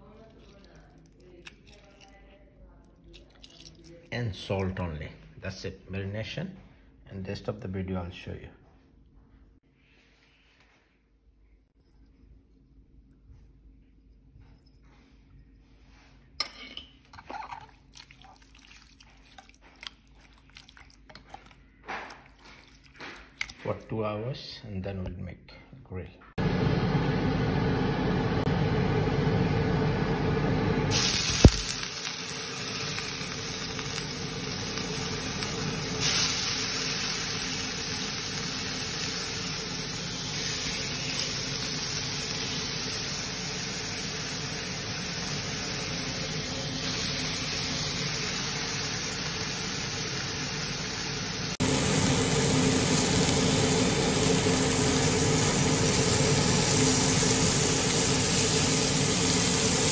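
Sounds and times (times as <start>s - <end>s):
fish sizzling on grill pan: 30.9s - 59.9s.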